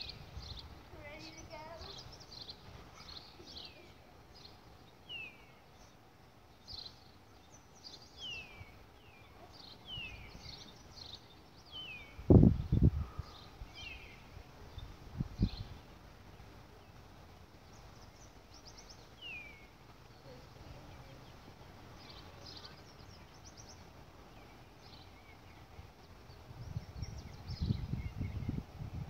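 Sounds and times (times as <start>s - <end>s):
birds whistling and chirping: 1.2s - 6.0s, 6.7s - 14.2s, 17.7s - 19.7s, 22.0s - 28.6s.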